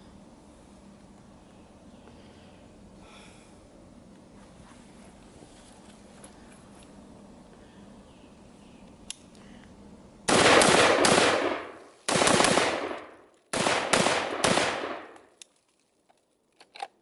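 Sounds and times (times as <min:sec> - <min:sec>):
rifle shots echoing: 0:10.3 - 0:15.3.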